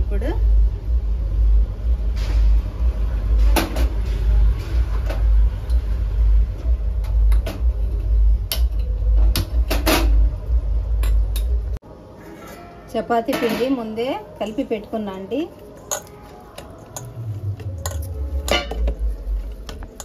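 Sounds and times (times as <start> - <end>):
steady low rumble: 0.0 - 11.8, 17.0 - 20.0
metal cookware clinking: 15.8 - 17.2, 17.8 - 19.1.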